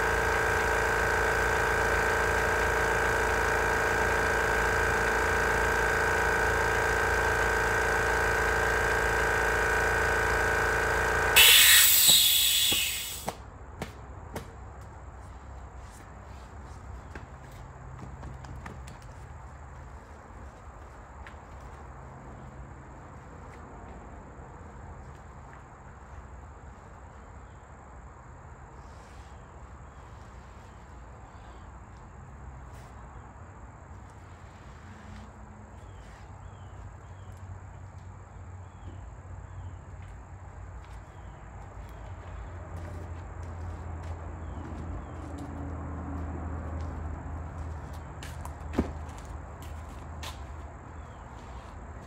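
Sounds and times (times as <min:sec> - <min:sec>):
high insect buzz: 0:11.4 - 0:13.3.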